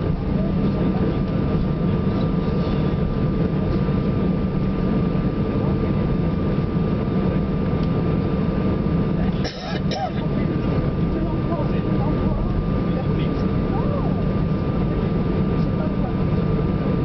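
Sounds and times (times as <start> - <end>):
jet engines rumbling with whine: 0.0 - 17.0.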